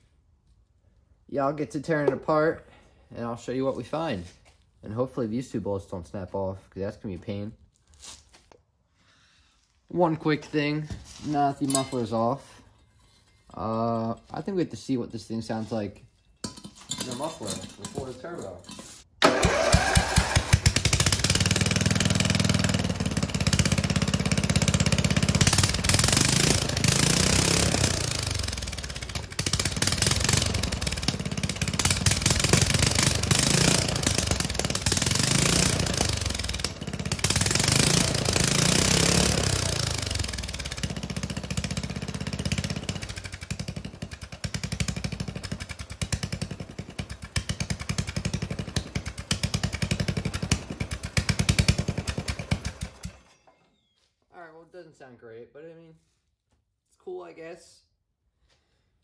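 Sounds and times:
unmuffled mower engine revving: 19.2 - 53.3.

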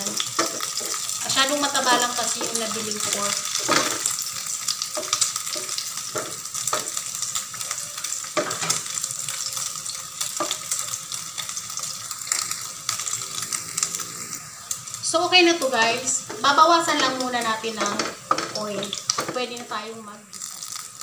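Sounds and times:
pork fat sizzling in a pan: 0.0 - 21.0
wooden spatula scraping a pan: 0.4 - 4.1.

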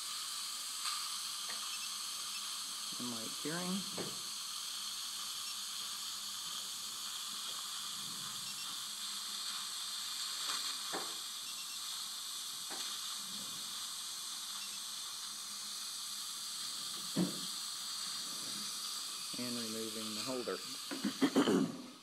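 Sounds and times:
dental suction hissing: 0.0 - 22.0.

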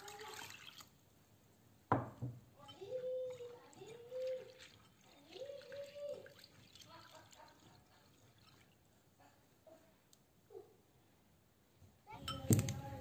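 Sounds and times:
water sloshing in a bowl: 0.0 - 1.0, 2.6 - 8.9.

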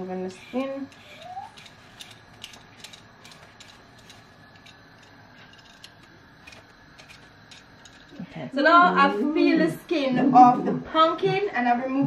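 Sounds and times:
peeler scraping carrot skin: 0.4 - 8.2.

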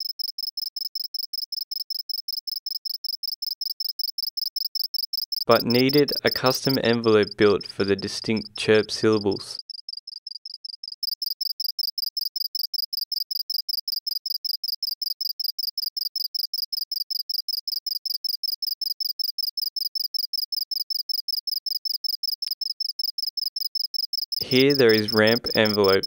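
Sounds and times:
synthesized cricket chirps: 0.0 - 26.0.

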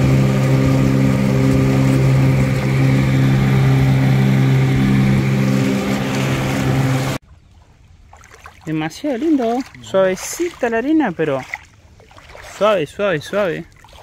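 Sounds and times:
engine humming steadily: 0.0 - 7.3.

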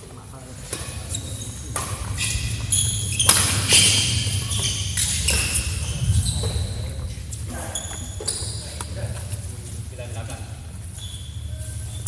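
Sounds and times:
steady low hall hum: 0.0 - 12.0
shoes squeaking on court floor: 0.6 - 12.0
rackets striking shuttlecock: 1.7 - 5.7.

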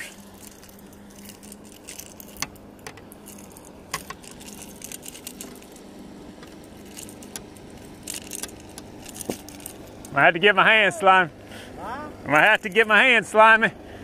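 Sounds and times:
fishing tackle clicks: 0.0 - 10.2
light metallic jingling: 0.0 - 10.2
steady low hum: 0.0 - 14.0.

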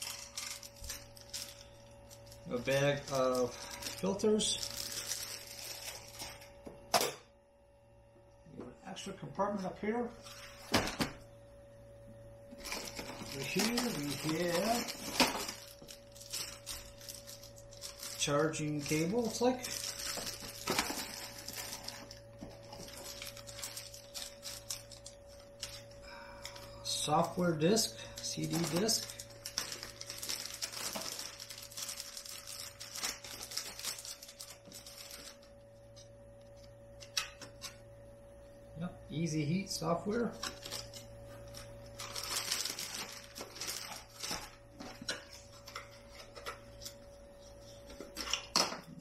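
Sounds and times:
plastic bags rustling: 0.0 - 6.6, 12.5 - 35.6, 40.2 - 49.0
faint steady hum: 0.0 - 49.0
faint steady whine: 0.0 - 49.0.

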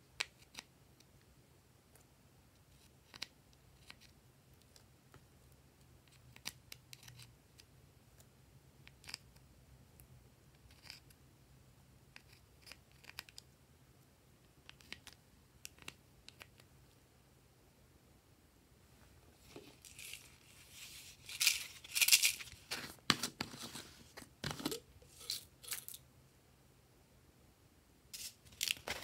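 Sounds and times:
plastic spatula scraping and clicking: 14.6 - 16.7.

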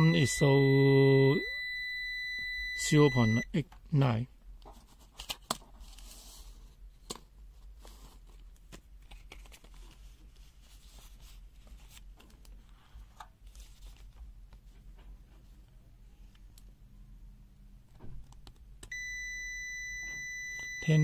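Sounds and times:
faint handling noise: 4.6 - 16.7
soft rustling: 7.5 - 16.3.

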